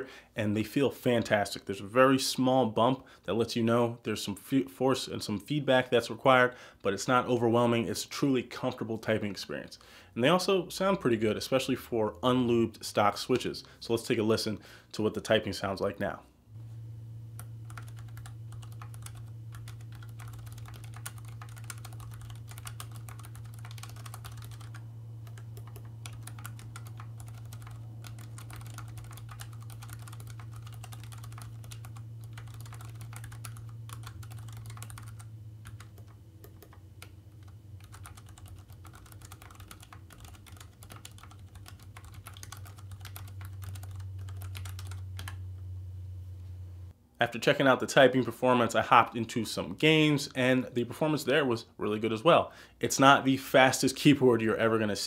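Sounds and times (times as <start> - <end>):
steady low hum: 16.0 - 51.8
mechanical keyboard typing: 17.6 - 45.4.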